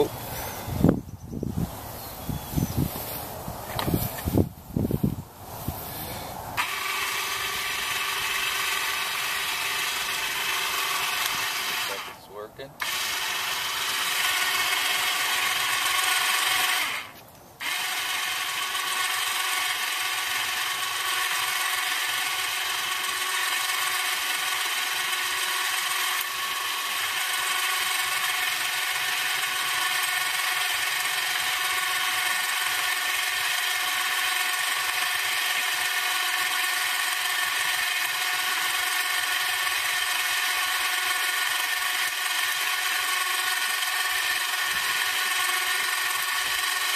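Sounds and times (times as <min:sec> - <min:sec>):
electric winch whining: 0:05.8 - 0:46.9.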